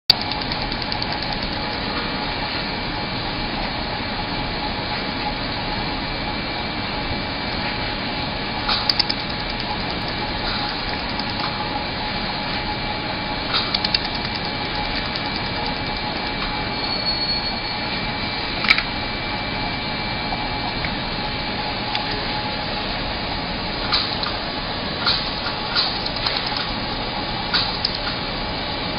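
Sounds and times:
sharp ticks: 0:00.1 - 0:01.9, 0:08.7 - 0:11.5, 0:13.5 - 0:16.6, 0:25.0 - 0:26.8, 0:27.5 - 0:28.2
laser welder whirring: 0:00.1 - 0:02.0, 0:06.8 - 0:17.0, 0:17.8 - 0:28.9.

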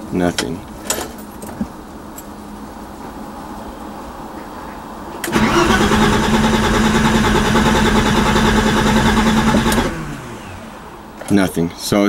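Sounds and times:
starter motor cranking: 0:05.3 - 0:11.4.

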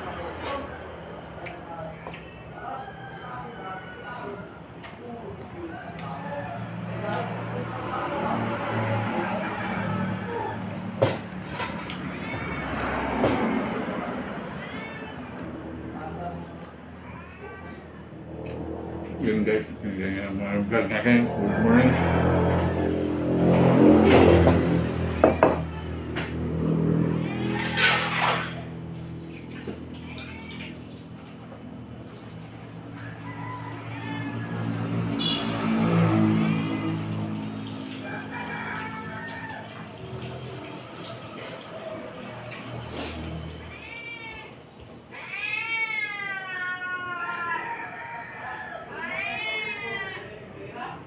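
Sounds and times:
cat meowing: 0:11.8 - 0:13.3, 0:13.9 - 0:16.1, 0:17.0 - 0:18.0, 0:30.0 - 0:30.9, 0:43.6 - 0:50.5.

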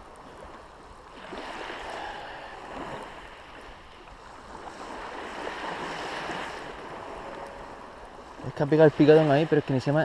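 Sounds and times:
small waves on shingle: 0:00.0 - 0:10.0.

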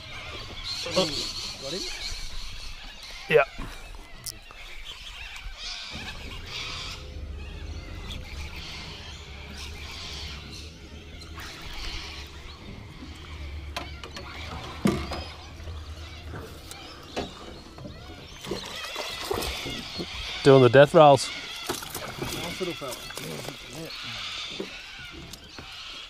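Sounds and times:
steady low rumble: 0:00.0 - 0:20.4
birds chirping: 0:00.0 - 0:26.0.

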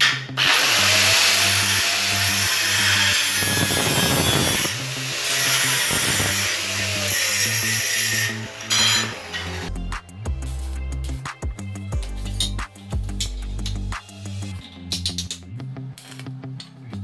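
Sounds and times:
angle grinder grinding metal: 0:00.0 - 0:09.7.

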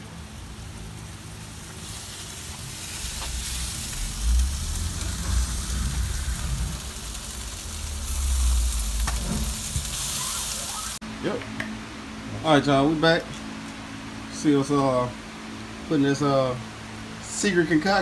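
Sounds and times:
low rumble: 0:00.0 - 0:11.0
meat sizzling on smoker racks: 0:00.0 - 0:11.4, 0:12.1 - 0:18.0.

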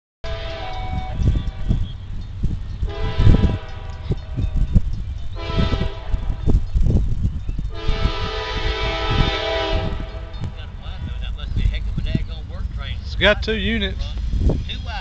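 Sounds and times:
locomotive air horn blasts: 0:00.2 - 0:01.8, 0:02.8 - 0:04.6, 0:05.4 - 0:06.6, 0:07.7 - 0:10.6
low rumbling thumps: 0:00.3 - 0:15.0.

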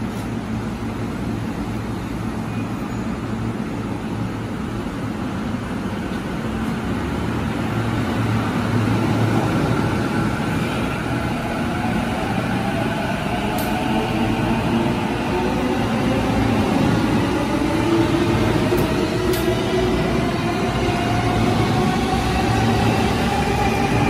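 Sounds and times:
train wheel and rail noise: 0:00.0 - 0:24.0.

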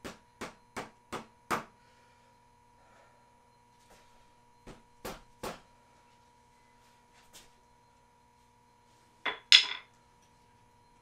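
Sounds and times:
sharp metallic knocks ringing: 0:09.3 - 0:09.9.

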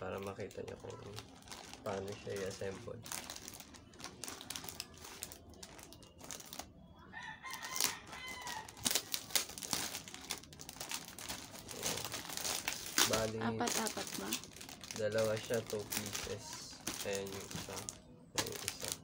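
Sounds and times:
plastic wrap crinkling: 0:00.0 - 0:19.0
rooster crowing: 0:07.0 - 0:09.0.

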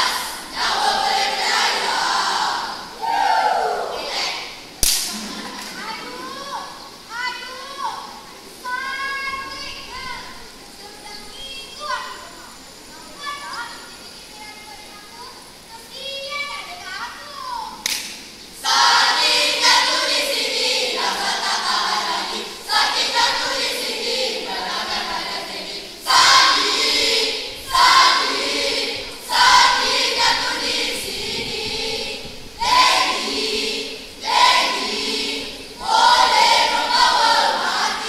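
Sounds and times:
young voices speaking in unison: 0:00.0 - 0:18.0.

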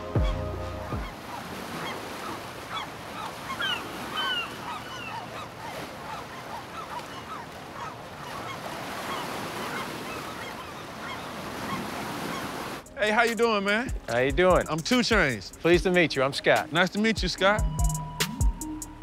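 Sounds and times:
flock of birds calling: 0:00.0 - 0:12.8.

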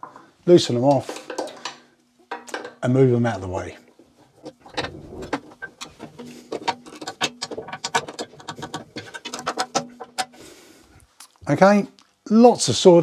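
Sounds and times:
small metal clicks and scrapes: 0:00.9 - 0:02.9, 0:03.9 - 0:10.4.

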